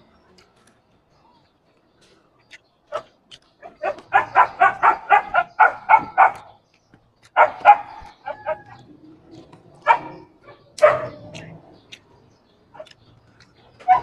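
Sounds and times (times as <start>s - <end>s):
dog barking: 2.9s - 6.5s, 7.4s - 8.7s, 9.8s - 11.4s, 12.7s - 13.0s.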